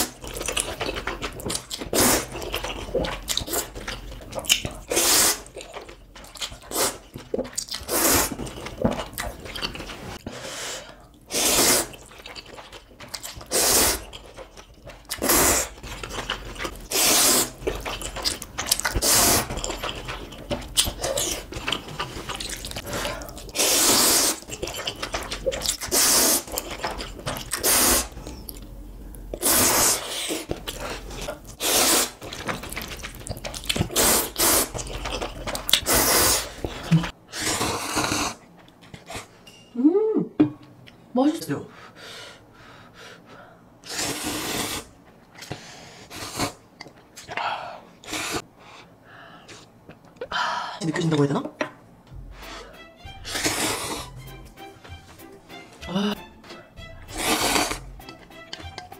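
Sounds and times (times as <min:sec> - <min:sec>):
quiet eating sounds: 0:00.0 - 0:41.1, 0:41.7 - 0:58.9
person slurping noodles: 0:01.9 - 0:03.7, 0:04.5 - 0:05.6, 0:06.7 - 0:07.0, 0:07.8 - 0:08.5, 0:10.0 - 0:12.1, 0:13.4 - 0:14.2, 0:15.1 - 0:20.1, 0:20.9 - 0:26.6, 0:27.5 - 0:28.2, 0:29.4 - 0:32.4, 0:33.7 - 0:34.8, 0:35.7 - 0:38.4, 0:43.8 - 0:44.9, 0:53.2 - 0:54.2, 0:57.1 - 0:58.0.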